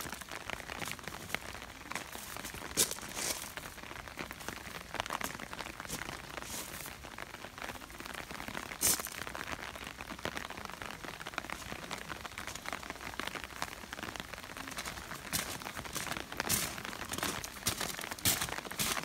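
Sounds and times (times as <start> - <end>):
footsteps on wet gravel: 0.0 - 7.0, 14.5 - 19.0
crackle: 0.0 - 19.0
light rain pattering: 0.0 - 19.0.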